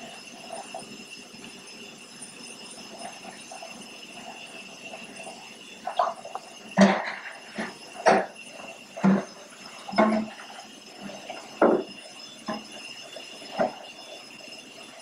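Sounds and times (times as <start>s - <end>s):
dishes clinking in sink: 6.8s - 8.4s, 9.9s - 10.5s.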